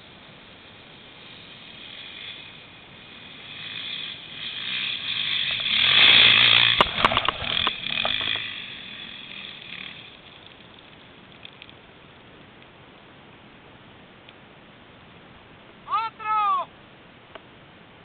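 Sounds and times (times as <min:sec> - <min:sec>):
motorcycle engine passing: 0:00.6 - 0:11.2.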